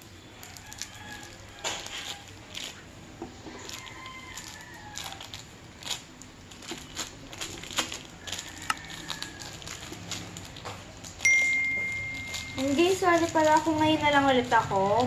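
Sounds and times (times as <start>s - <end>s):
clay clicks and crinkles: 0.0s - 11.3s, 12.0s - 15.0s
rooster crowing: 0.4s - 2.4s, 3.4s - 5.4s, 8.1s - 9.9s.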